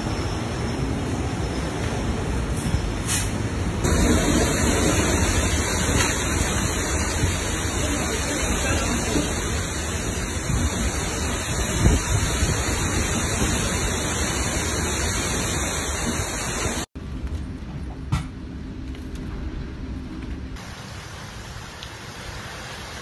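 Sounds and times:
heavy rain: 3.7s - 16.9s, 20.6s - 23.0s
wind gusts buffeting microphone: 3.8s - 16.8s.

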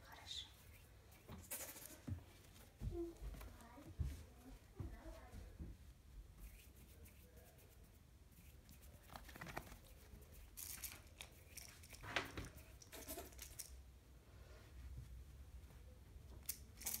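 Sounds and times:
kitten scratching fabric blanket: 6.3s - 10.6s.

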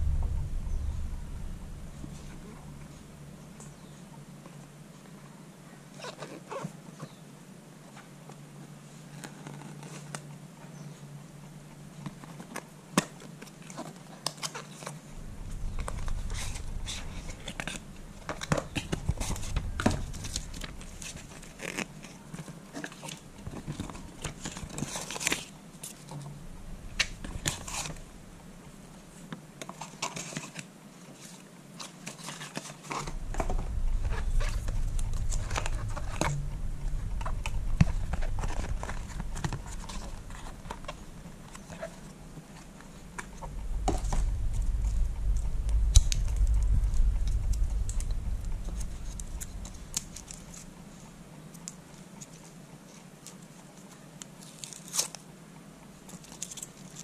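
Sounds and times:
low rumble: 0.0s - 4.9s, 15.0s - 22.1s, 26.1s - 29.2s, 32.9s - 51.4s
packaging paper crinkling and rustling: 15.7s - 28.1s, 28.9s - 44.2s, 48.7s - 55.3s, 56.0s - 57.0s.

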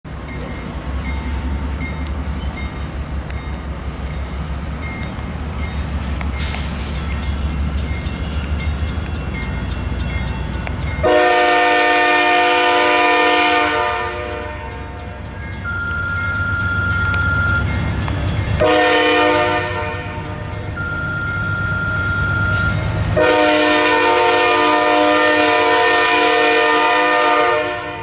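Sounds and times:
locomotive rumble: 0.1s - 28.0s
train air horn blast: 11.0s - 14.9s, 18.6s - 20.4s, 23.2s - 28.0s.

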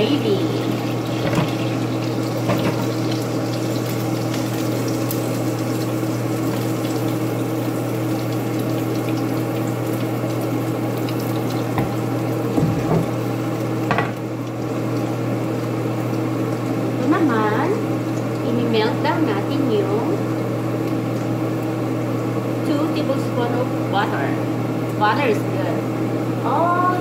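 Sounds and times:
cookware knocks: 11.8s - 12.0s, 13.9s - 14.2s.

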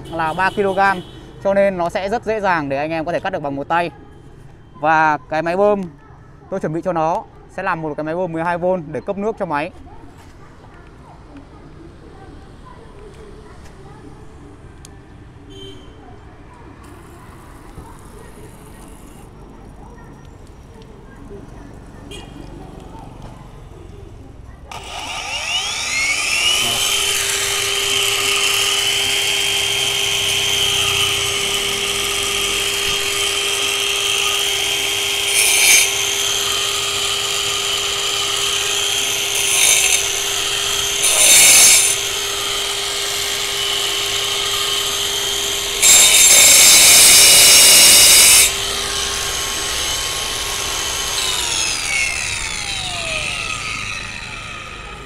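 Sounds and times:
blades grinding brick: 24.8s - 55.0s
wall chaser high whine: 42.1s - 55.0s.

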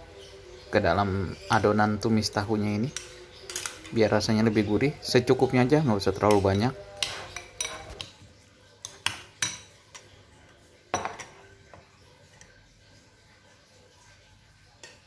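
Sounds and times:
cutlery clinking on ceramic bowl: 2.9s - 4.0s, 6.2s - 10.2s, 10.9s - 12.5s.

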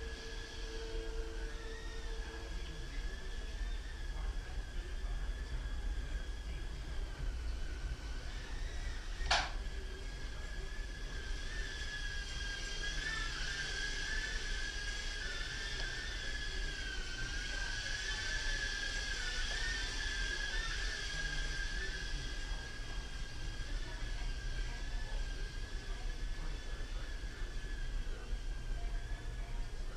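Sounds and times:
quadcopter propellers whining: 0.0s - 29.9s
sharp click: 9.2s - 9.5s.

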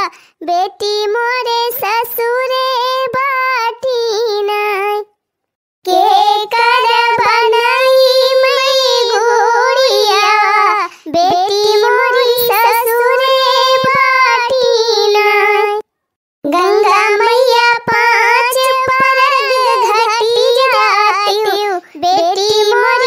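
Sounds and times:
high-pitched voice singing: 5.9s - 15.9s, 16.5s - 23.0s.

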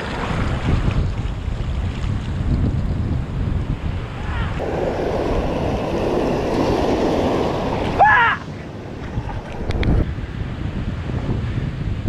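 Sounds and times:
rushing splashing water: 0.0s - 2.9s, 4.1s - 10.0s
shallow water washing: 0.0s - 10.1s
wind buffeting microphone: 0.0s - 12.0s.

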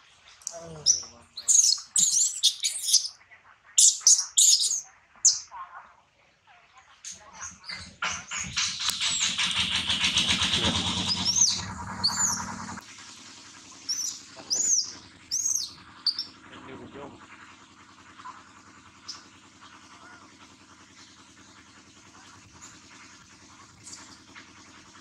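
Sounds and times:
baby monkey squealing: 0.8s - 3.1s, 3.8s - 5.5s, 7.4s - 12.8s, 13.9s - 16.4s.

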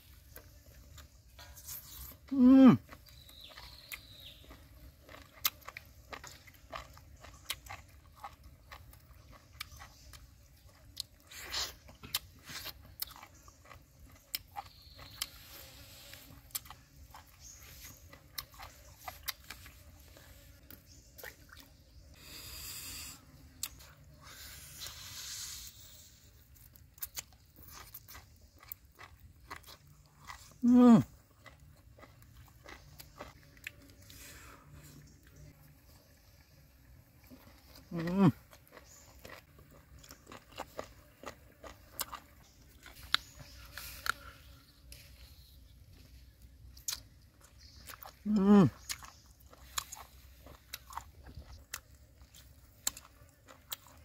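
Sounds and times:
person chewing and lip-smacking: 0.2s - 21.7s, 22.8s - 34.2s, 37.2s - 45.0s, 46.0s - 54.0s
hissy sucking noises: 22.2s - 23.3s, 24.2s - 26.4s.

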